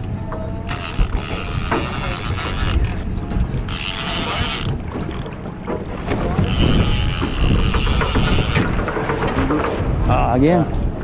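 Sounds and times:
low rumble of boat: 0.0 - 11.0
wind: 0.0 - 11.0
fishing reel gears whirring: 0.6 - 5.3, 6.4 - 8.9.

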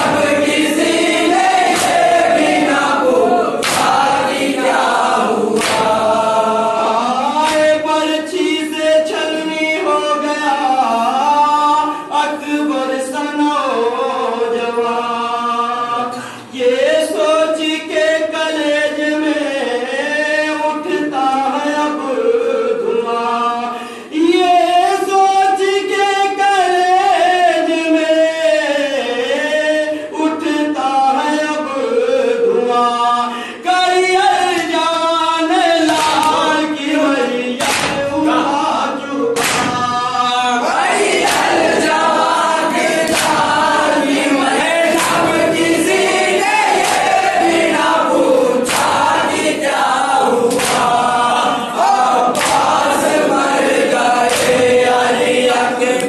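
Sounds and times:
crowd of men chanting loudly: 0.0 - 16.1, 31.2 - 56.0
man reciting over microphone: 0.0 - 56.0
men chanting in unison: 0.0 - 56.0
chest slaps: 1.7 - 2.2, 3.6 - 4.1, 5.6 - 6.0, 37.6 - 38.1, 39.4 - 40.0, 41.2 - 41.6, 43.0 - 43.5, 45.0 - 45.4, 46.8 - 47.2, 48.7 - 49.1, 50.5 - 51.0, 52.3 - 52.8, 54.3 - 54.7.

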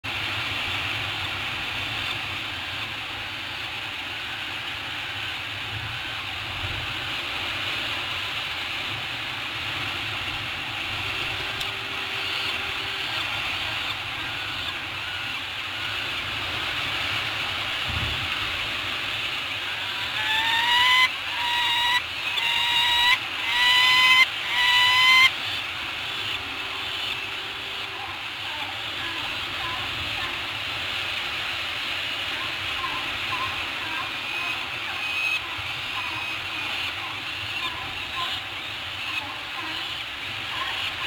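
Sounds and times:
wind on microphone: 17.8 - 18.6.

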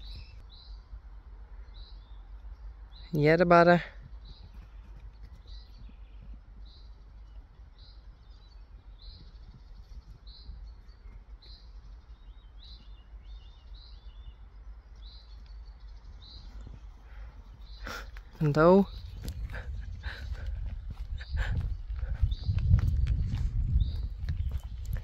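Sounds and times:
small bird chirping: 0.0 - 0.9, 1.6 - 23.0
steady low rumble: 0.0 - 3.1, 3.9 - 25.0.

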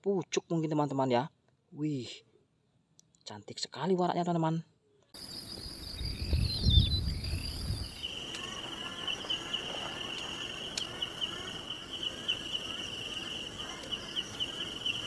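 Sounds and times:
insects trilling: 5.2 - 15.0.

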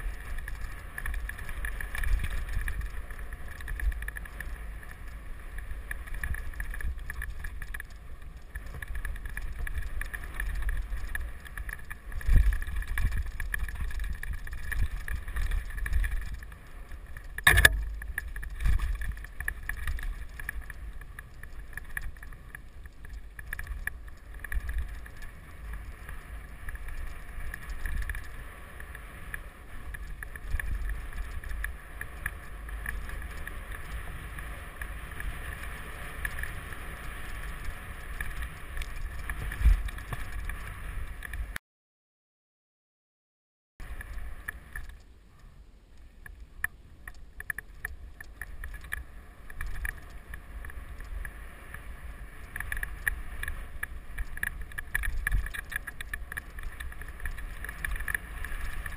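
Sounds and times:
bike knocking on bumps: 0.0 - 41.6
bike tyres and frame rattling: 0.0 - 41.6, 43.8 - 58.9
wind on microphone: 17.2 - 41.6.

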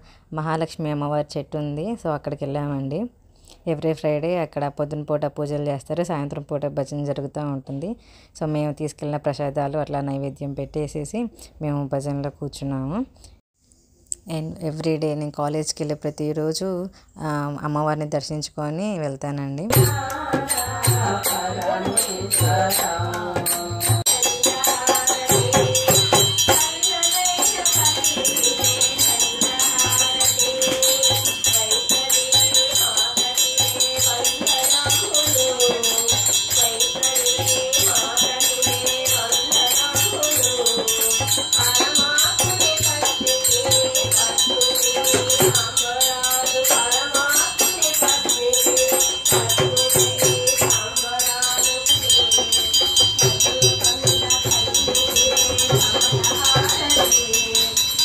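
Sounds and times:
jingling percussion: 19.7 - 58.0
women singing: 19.7 - 58.0.

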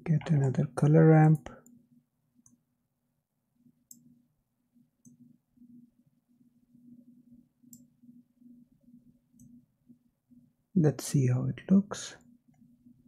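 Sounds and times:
computer mouse clicks: 3.9 - 4.1, 5.0 - 5.2, 7.6 - 7.9, 9.3 - 9.6.

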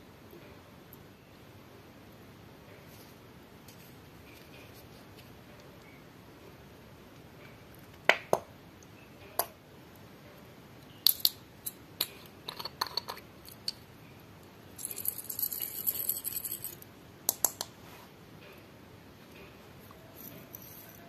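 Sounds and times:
beads rattling out of a jar: 14.8 - 16.8, 20.1 - 21.0.

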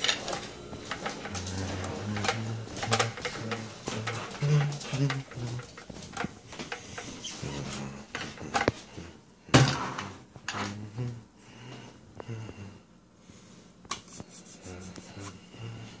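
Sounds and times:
hard objects clacking: 0.0 - 7.3
rubbing and shuffling: 0.0 - 9.1, 13.9 - 15.4.

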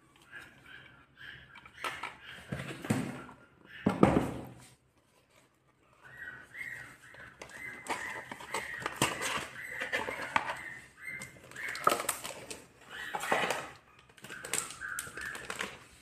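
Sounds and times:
bird chirping: 0.0 - 4.4, 5.8 - 16.0
cardboard packaging rustling: 6.9 - 16.0.

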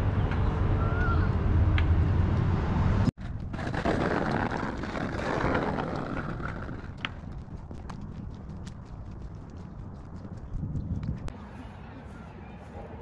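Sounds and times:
vehicle engine and road noise: 0.0 - 4.1
quiet outdoor ambience: 0.0 - 13.0.

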